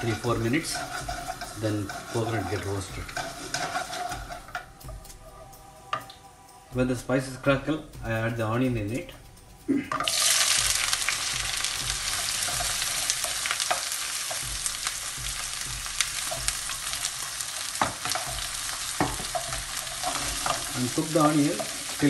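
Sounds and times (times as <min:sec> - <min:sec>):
wooden spatula knocking pan: 0:00.0 - 0:04.6, 0:09.9 - 0:22.0
onion sizzling in hot oil: 0:00.0 - 0:05.2, 0:10.0 - 0:22.0.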